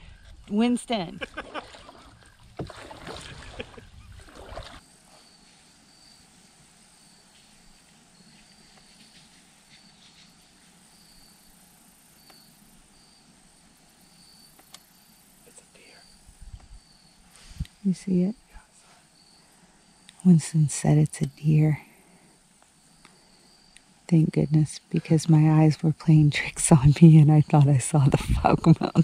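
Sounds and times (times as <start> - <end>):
water swishing from paddling: 1.2 - 4.8
paddle knocks: 2.5 - 3.4.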